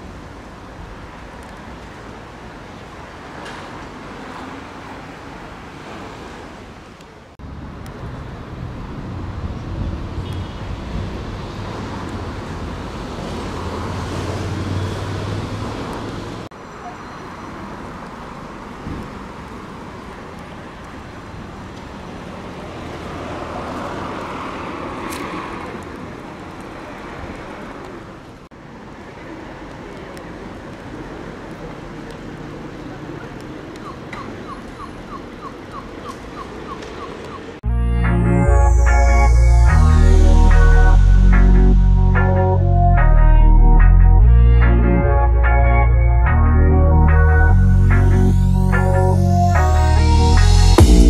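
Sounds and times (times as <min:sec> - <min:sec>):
electric train rumbling: 0:37.7 - 0:45.6.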